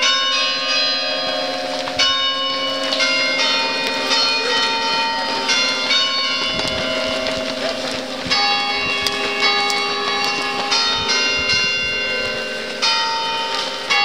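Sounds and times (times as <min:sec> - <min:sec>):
church bells ringing: 0:00.0 - 0:14.0.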